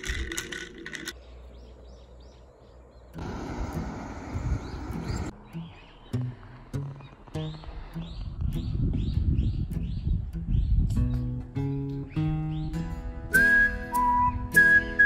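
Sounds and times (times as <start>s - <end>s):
small birds chirping: 1.1s - 12.9s.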